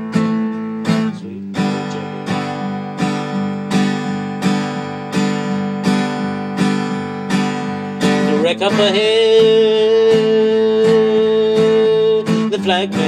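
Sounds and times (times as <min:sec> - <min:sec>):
acoustic guitar strumming: 0:00.0 - 0:13.0
person singing: 0:00.8 - 0:03.4, 0:07.9 - 0:13.0.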